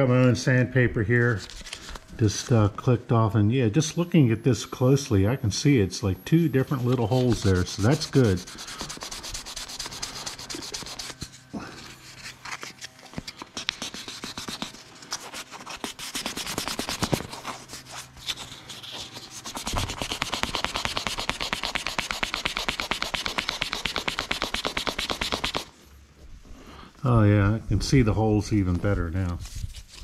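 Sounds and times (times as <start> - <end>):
sandpaper rasping on rubber: 6.7 - 11.3, 13.7 - 25.7.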